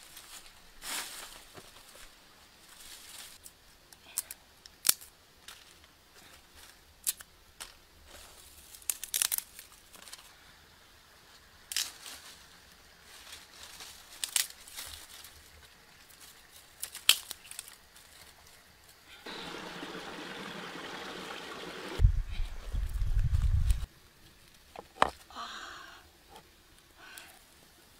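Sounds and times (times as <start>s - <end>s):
twigs snapping: 4.2s - 5.7s, 8.7s - 10.2s, 14.1s - 15.4s, 16.7s - 18.3s
stream water rushing: 19.2s - 22.1s.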